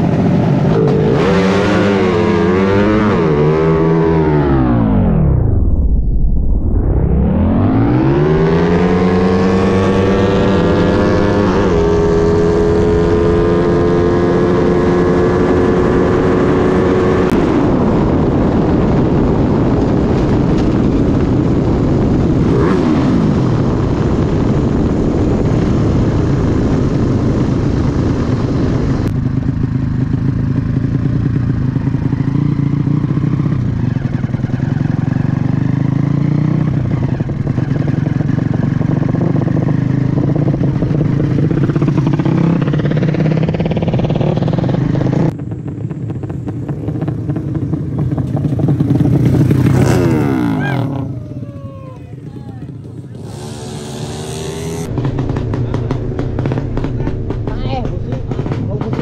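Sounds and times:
motorcycle engine revving: 0.0s - 5.6s, 6.9s - 59.0s
wind rush: 0.0s - 29.5s.

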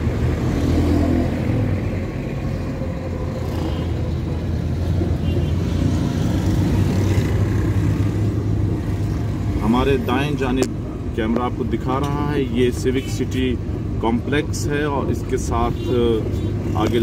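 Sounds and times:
car engine and tyres rumbling: 0.0s - 17.0s
street traffic: 0.0s - 17.0s.

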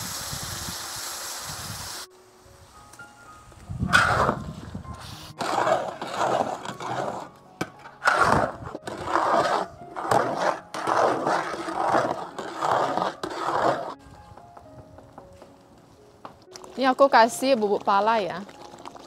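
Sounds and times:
spatula scraping a cooking pan: 3.9s - 14.0s.

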